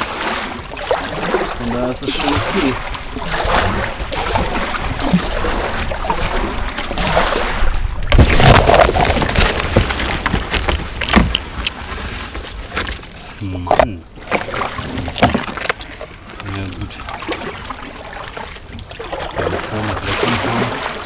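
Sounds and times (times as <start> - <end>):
paddle knocking against hull: 0.0 - 13.0, 13.7 - 21.0
paddle splashes: 0.0 - 21.0.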